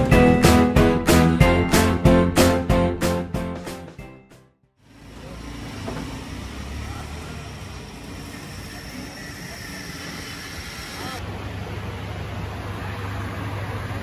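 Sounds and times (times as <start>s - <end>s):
music: 0.0s - 4.7s
traffic hum: 4.8s - 14.0s.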